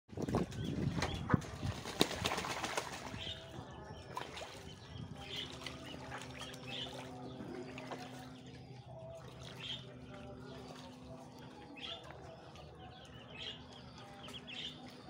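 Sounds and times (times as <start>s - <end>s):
duck splashing in water: 0.2s - 8.4s.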